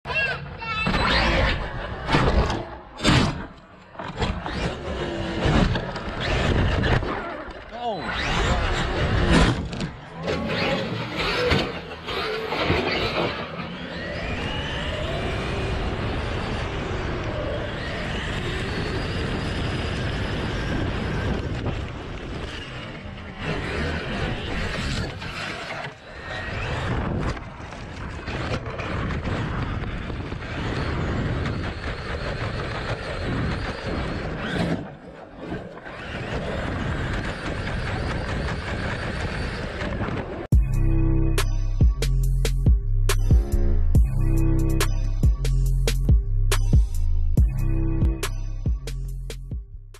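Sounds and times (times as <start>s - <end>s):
rumble of tyres and wind: 0.1s - 49.9s
rc truck motor whining: 0.2s - 40.5s.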